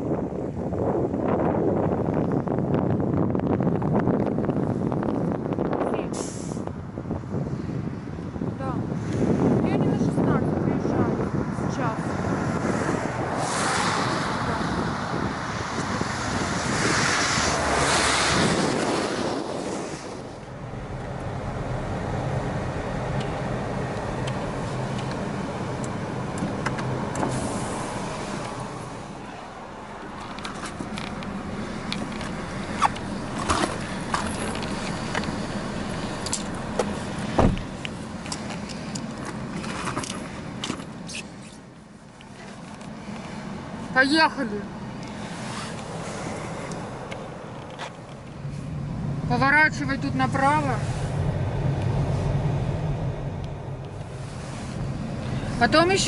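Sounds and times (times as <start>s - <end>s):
wind noise: 0.0s - 41.5s, 43.0s - 56.0s
car engine humming: 0.0s - 56.0s
loud thump: 37.4s - 37.7s.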